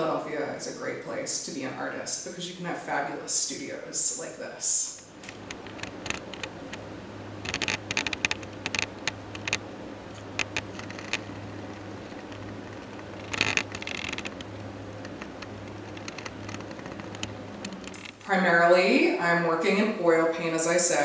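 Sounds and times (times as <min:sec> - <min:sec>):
steady low hum: 0:00.0 - 0:21.0
small clicks and rustles: 0:05.0 - 0:06.8, 0:07.4 - 0:18.3.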